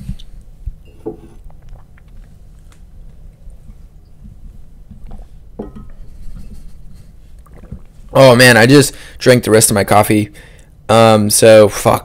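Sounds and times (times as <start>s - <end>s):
person sipping and swallowing: 0.0s - 4.0s, 7.3s - 8.1s
person breathing: 8.9s - 9.2s, 10.3s - 10.8s.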